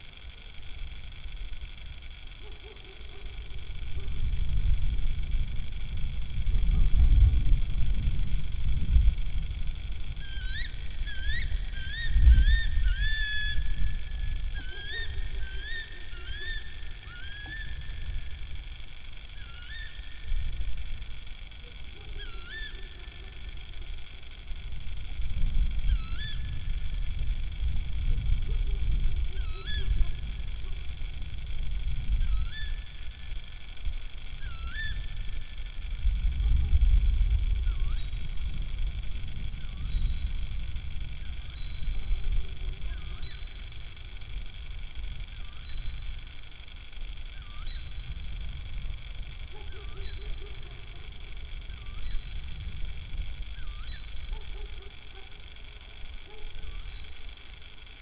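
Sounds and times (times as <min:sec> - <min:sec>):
low rumble: 0:03.1 - 0:58.0
owl calling: 0:10.2 - 0:18.5, 0:19.2 - 0:20.6, 0:21.6 - 0:23.9, 0:25.8 - 0:27.1, 0:28.5 - 0:31.0, 0:32.1 - 0:33.4, 0:34.3 - 0:35.7, 0:37.6 - 0:38.2, 0:41.1 - 0:44.3, 0:45.3 - 0:46.2, 0:47.3 - 0:48.2, 0:49.3 - 0:57.4.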